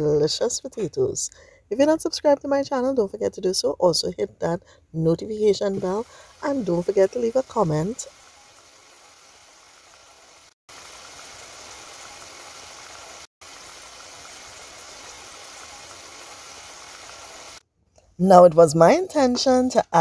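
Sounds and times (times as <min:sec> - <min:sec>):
potatoes sizzling in hot oil: 0:05.8 - 0:17.6.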